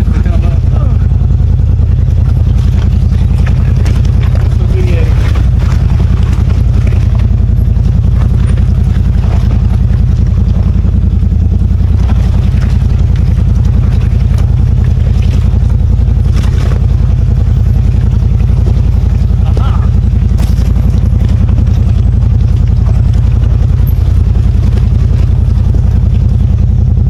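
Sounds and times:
engine running loudly: 0.0s - 27.0s.

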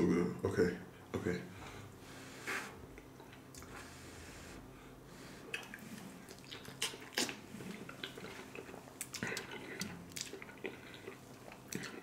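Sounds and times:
wet mouth eating sounds: 5.4s - 12.0s.

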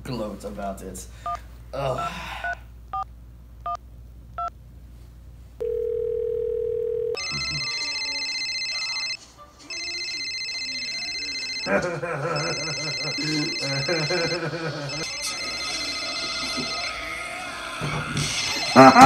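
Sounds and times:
electronic telephone ring: 5.6s - 11.7s, 12.4s - 17.0s
ringback tone: 5.6s - 11.7s.

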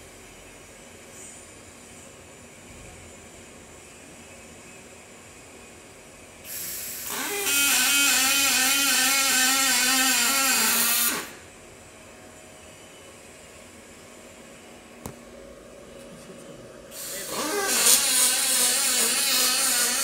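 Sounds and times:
welder hiss: 6.5s - 11.4s, 16.9s - 20.0s
welding arc buzzing: 6.5s - 11.4s, 16.9s - 20.0s.

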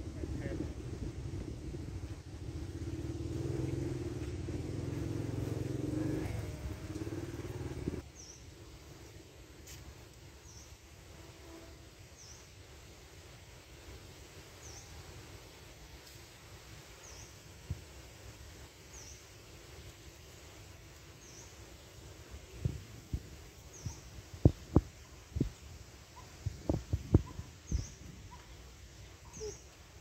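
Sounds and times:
vehicle engine humming: 2.2s - 8.0s.

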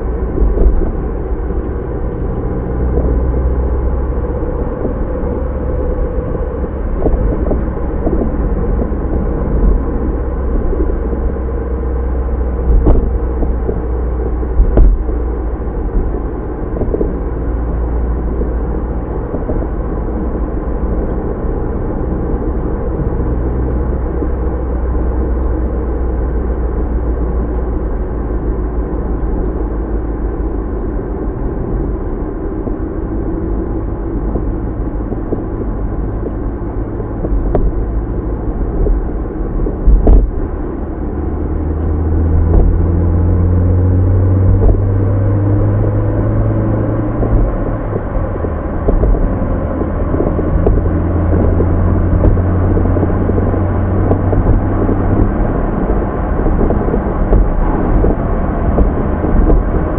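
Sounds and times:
car engine running: 0.0s - 59.9s
loud low drone: 0.0s - 59.9s.

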